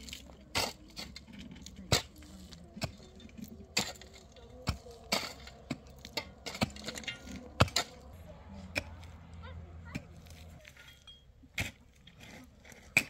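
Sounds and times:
sharp knocks and clinks: 9.9s - 11.9s.

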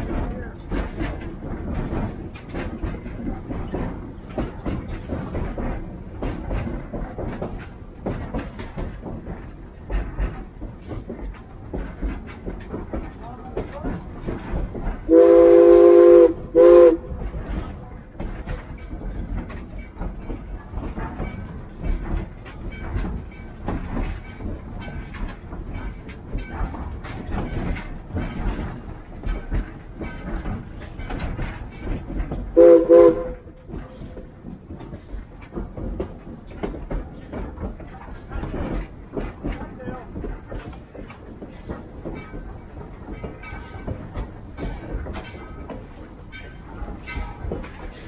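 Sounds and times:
train clattering on rails: 0.0s - 48.0s
steam locomotive whistle: 15.1s - 17.1s, 32.6s - 33.6s.

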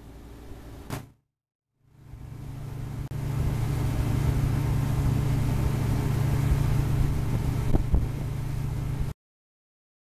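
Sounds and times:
short thump: 0.9s - 1.2s
boat motor droning: 1.8s - 9.1s.

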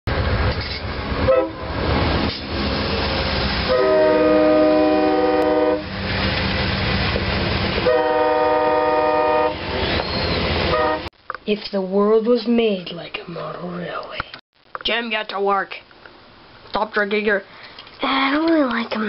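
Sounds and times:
train rumble and rail noise: 0.1s - 11.1s
train air horn blasts: 1.2s - 1.7s, 3.6s - 5.9s, 7.8s - 9.6s, 10.7s - 11.1s.

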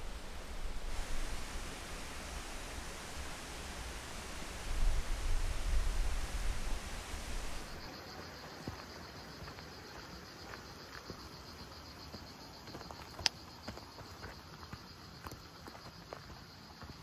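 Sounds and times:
wind buffeting microphone: 0.0s - 7.9s
faint footsteps on trail: 0.0s - 17.0s
high insect trill: 0.0s - 17.0s.

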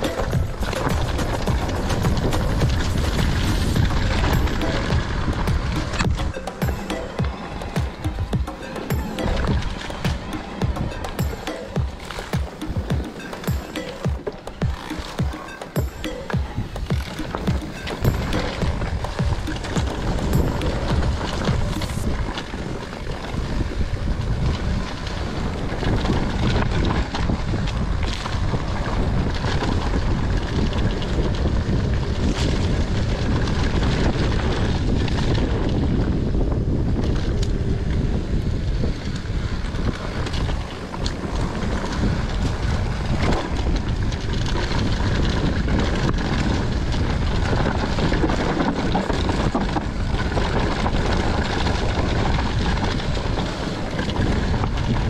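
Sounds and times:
bike knocks and rattles: 0.0s - 55.0s
tyres rumbling on dirt and leaves: 0.0s - 55.0s
wind rushing over microphone: 0.0s - 55.0s.

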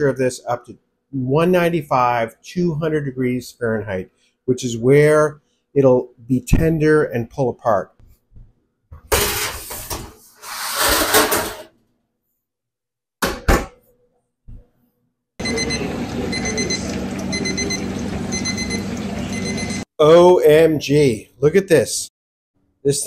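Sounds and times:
metal pan and rack clattering: 9.1s - 10.2s, 10.8s - 11.7s
oven convection fan whirring: 15.4s - 19.8s
probe thermometer beeping: 15.4s - 19.9s.

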